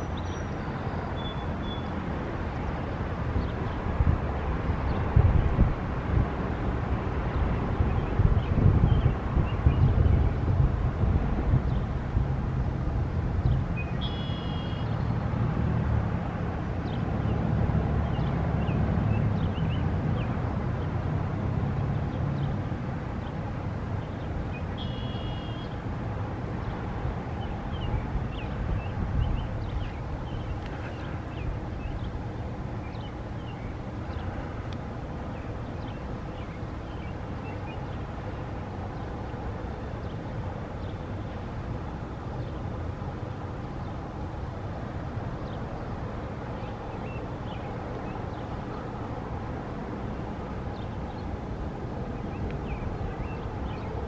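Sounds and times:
bird chirps: 0:00.0 - 0:01.9, 0:13.8 - 0:15.0, 0:24.5 - 0:25.8
road traffic rumble: 0:00.0 - 0:54.0.

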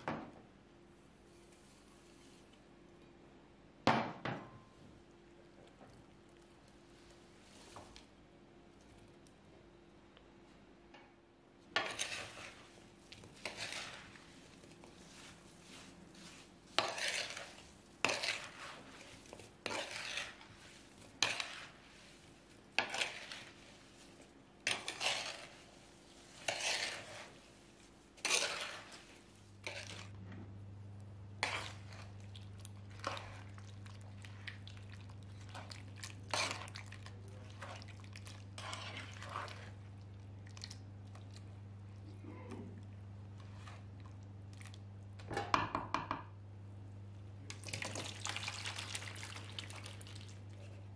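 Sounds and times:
steady low hum: 0:04.6 - 0:45.3
metal spoon scraping a bowl: 0:11.8 - 0:12.6, 0:13.4 - 0:14.2, 0:16.2 - 0:19.0, 0:19.6 - 0:20.6, 0:21.2 - 0:21.8, 0:22.8 - 0:23.6, 0:24.6 - 0:25.6, 0:26.3 - 0:27.3, 0:28.2 - 0:29.0, 0:29.6 - 0:30.1.

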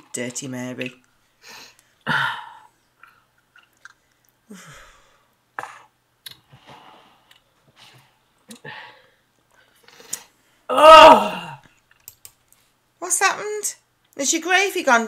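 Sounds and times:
person chewing food: 0:02.7 - 0:04.5, 0:05.6 - 0:08.7.

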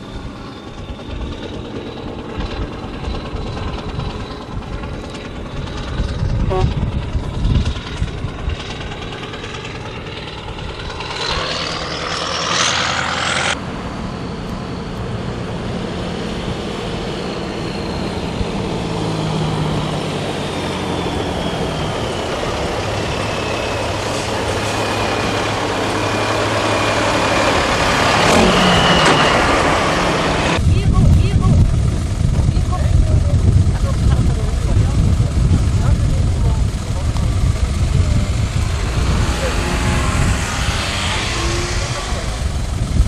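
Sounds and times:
rising whine: 0:00.0 - 0:43.0
truck engine passing: 0:07.5 - 0:30.6, 0:33.5 - 0:43.0.

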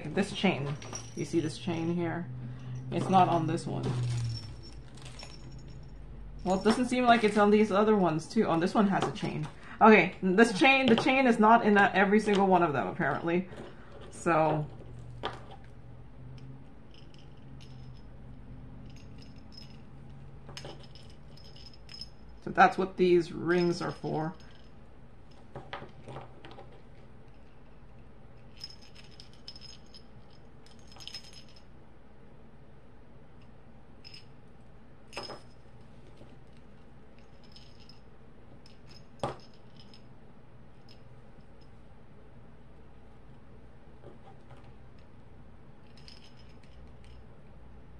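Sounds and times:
metal keychain parts clinking: 0:00.0 - 0:02.0, 0:02.6 - 0:09.6, 0:18.8 - 0:22.5, 0:28.4 - 0:31.6
low steady hum: 0:00.0 - 0:47.9.

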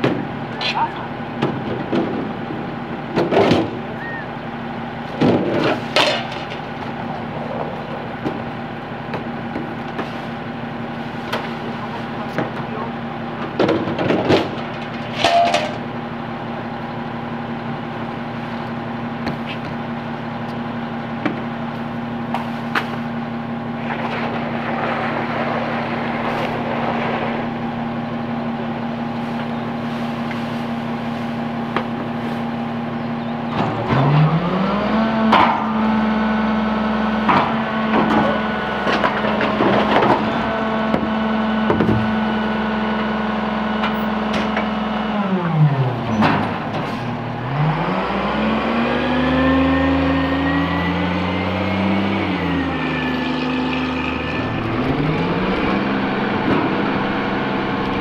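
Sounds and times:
diesel engine idling: 0:00.0 - 0:58.0
metal trash can clanking: 0:05.2 - 0:07.0, 0:13.4 - 0:15.9, 0:53.1 - 0:58.0.

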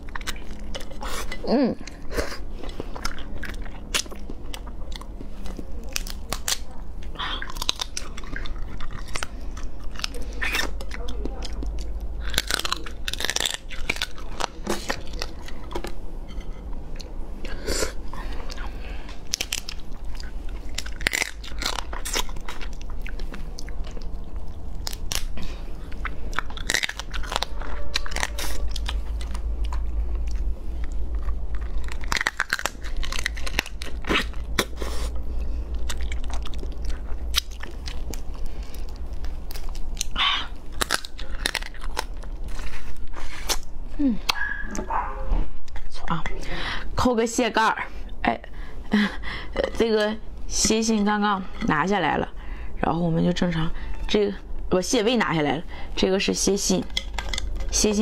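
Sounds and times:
crunching and chewing crab shell: 0:00.0 - 0:44.8, 0:56.9 - 0:57.8.

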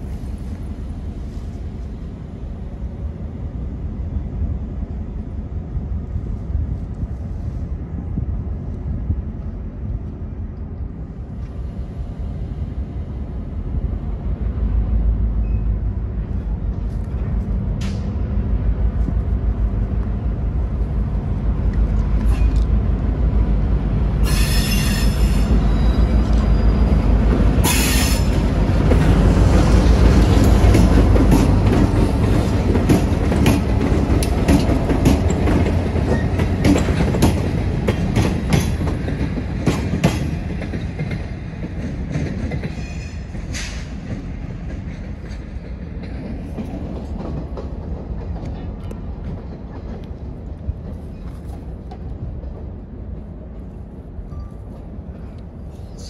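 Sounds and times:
freight train rumbling: 0:00.0 - 0:56.0
train wheels squealing: 0:15.4 - 0:15.9, 0:24.2 - 0:28.6, 0:36.0 - 0:36.8, 0:42.6 - 0:44.1, 0:50.9 - 0:51.7, 0:54.3 - 0:56.0
wheels clicking over rail joints: 0:27.3 - 0:53.4.

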